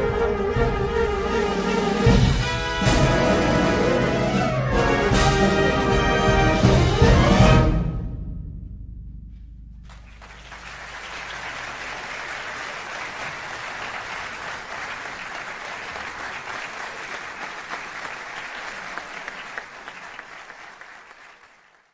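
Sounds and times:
audience applauding: 0:09.9 - 0:21.9.

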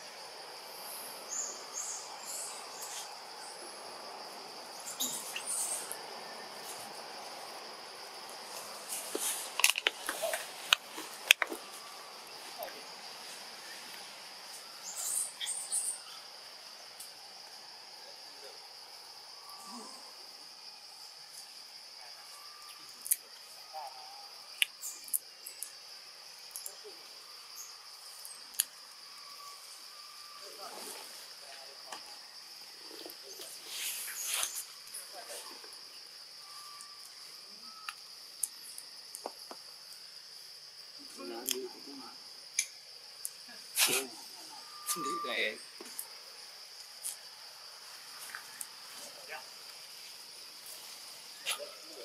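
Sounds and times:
crickets chirping: 0:00.0 - 0:52.0
high insect drone: 0:00.0 - 0:52.0
sharp clicks and snaps: 0:42.6 - 0:43.4.

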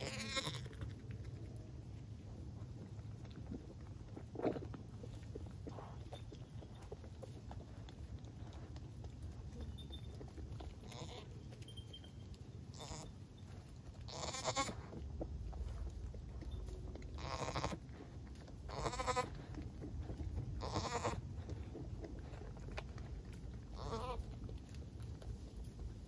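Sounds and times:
goats bleating: 0:00.0 - 0:00.8, 0:10.8 - 0:11.4, 0:12.7 - 0:13.1, 0:14.1 - 0:14.8, 0:17.2 - 0:17.8, 0:18.7 - 0:19.4, 0:20.6 - 0:21.2, 0:23.7 - 0:24.3.

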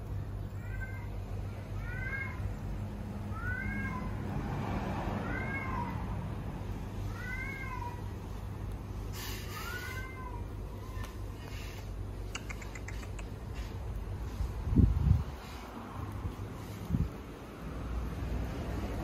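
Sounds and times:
cat meowing: 0:00.5 - 0:02.6, 0:03.3 - 0:04.3, 0:05.2 - 0:06.1, 0:07.0 - 0:08.1, 0:09.5 - 0:11.2.

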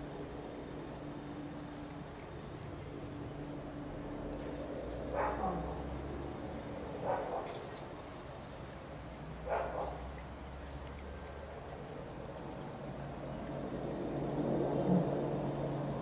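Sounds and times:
dog barking: 0:05.1 - 0:05.7, 0:07.0 - 0:07.6, 0:09.4 - 0:10.0.

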